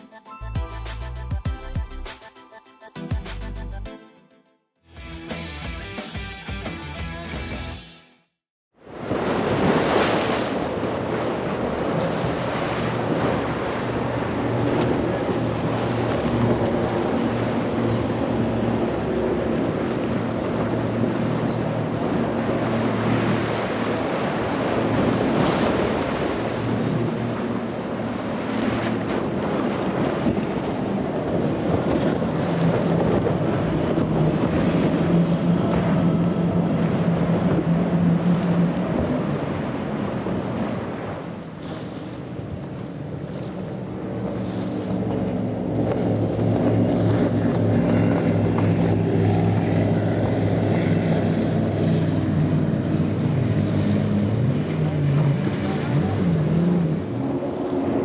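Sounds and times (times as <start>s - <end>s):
outboard engines droning: 8.8s - 58.0s
wake and spray rushing: 8.9s - 58.0s.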